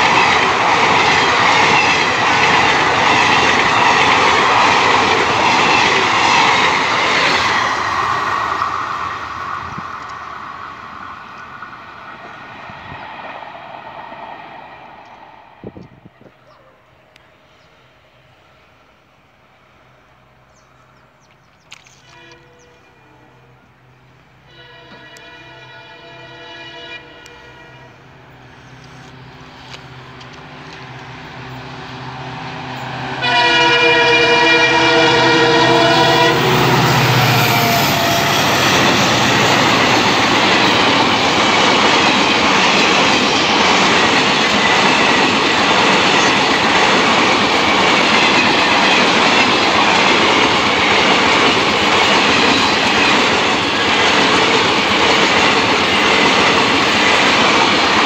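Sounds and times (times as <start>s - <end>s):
train wheels clattering on rails: 0.0s - 8.2s, 36.4s - 58.0s
diesel locomotive engine passing: 0.0s - 58.0s
train horn: 22.0s - 23.7s, 24.4s - 28.3s, 32.8s - 40.8s.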